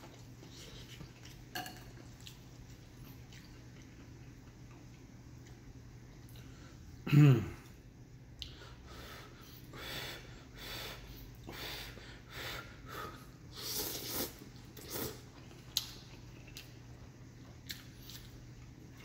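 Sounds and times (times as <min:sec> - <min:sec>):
slurping noodle soup: 0:13.5 - 0:15.4.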